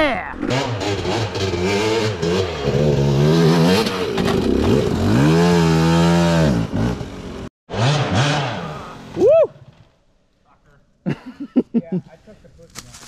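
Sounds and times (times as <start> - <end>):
dirt bike engine revving: 0.4 - 9.8.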